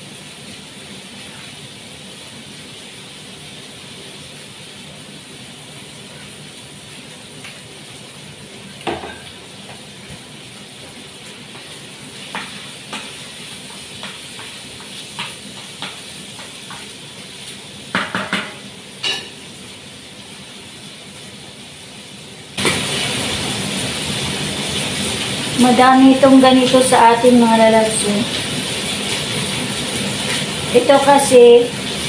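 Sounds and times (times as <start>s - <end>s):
chicken sizzling in frying pan: 0.0s - 32.0s
spatula knocking and scraping pan: 11.5s - 17.0s, 17.9s - 19.5s.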